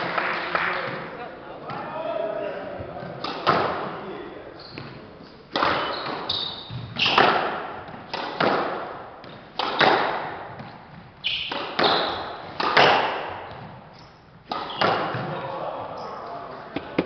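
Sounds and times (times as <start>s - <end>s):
shoes squeaking on wooden floor: 2.8s - 8.1s, 10.5s - 12.6s, 13.4s - 15.3s
squash ball cracking off racquets: 3.0s - 3.9s, 5.5s - 15.4s, 16.7s - 17.0s.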